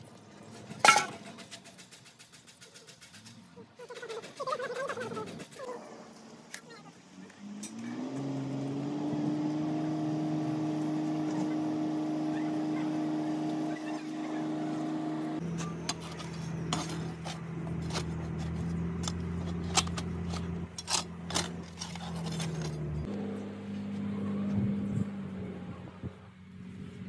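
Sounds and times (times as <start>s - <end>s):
motor hum: 7.1s - 27.0s
metal tools scraping moulding sand: 15.4s - 23.1s.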